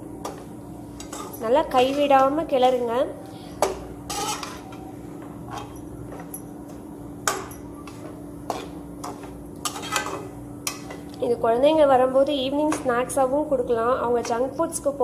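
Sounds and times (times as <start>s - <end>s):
metal spatula scraping metal pan: 1.0s - 2.9s, 4.0s - 4.8s, 7.8s - 10.9s.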